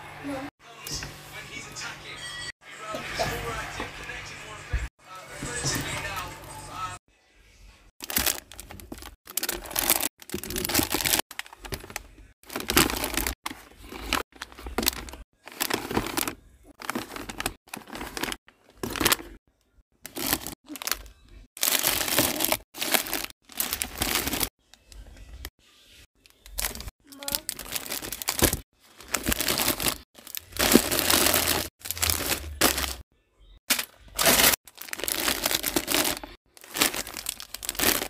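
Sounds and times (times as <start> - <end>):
plastic snack bags crinkling: 8.0 - 19.4, 20.0 - 24.5, 26.2 - 33.0, 33.7 - 38.0.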